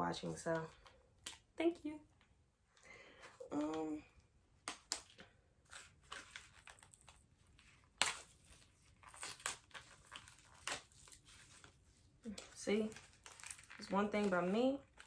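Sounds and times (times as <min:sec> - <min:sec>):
plastic packaging crackling and snapping: 0:04.6 - 0:15.0.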